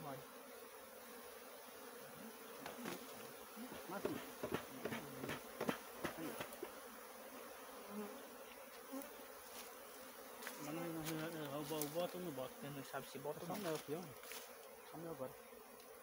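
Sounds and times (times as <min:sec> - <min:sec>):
bees buzzing: 0:00.0 - 0:16.0.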